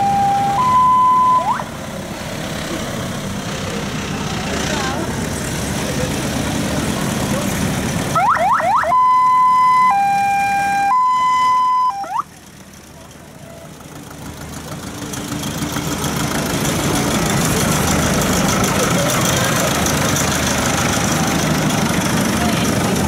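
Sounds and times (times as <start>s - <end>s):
electronic siren wailing: 0.0s - 1.7s, 8.2s - 12.3s
engine rumble: 0.0s - 23.0s.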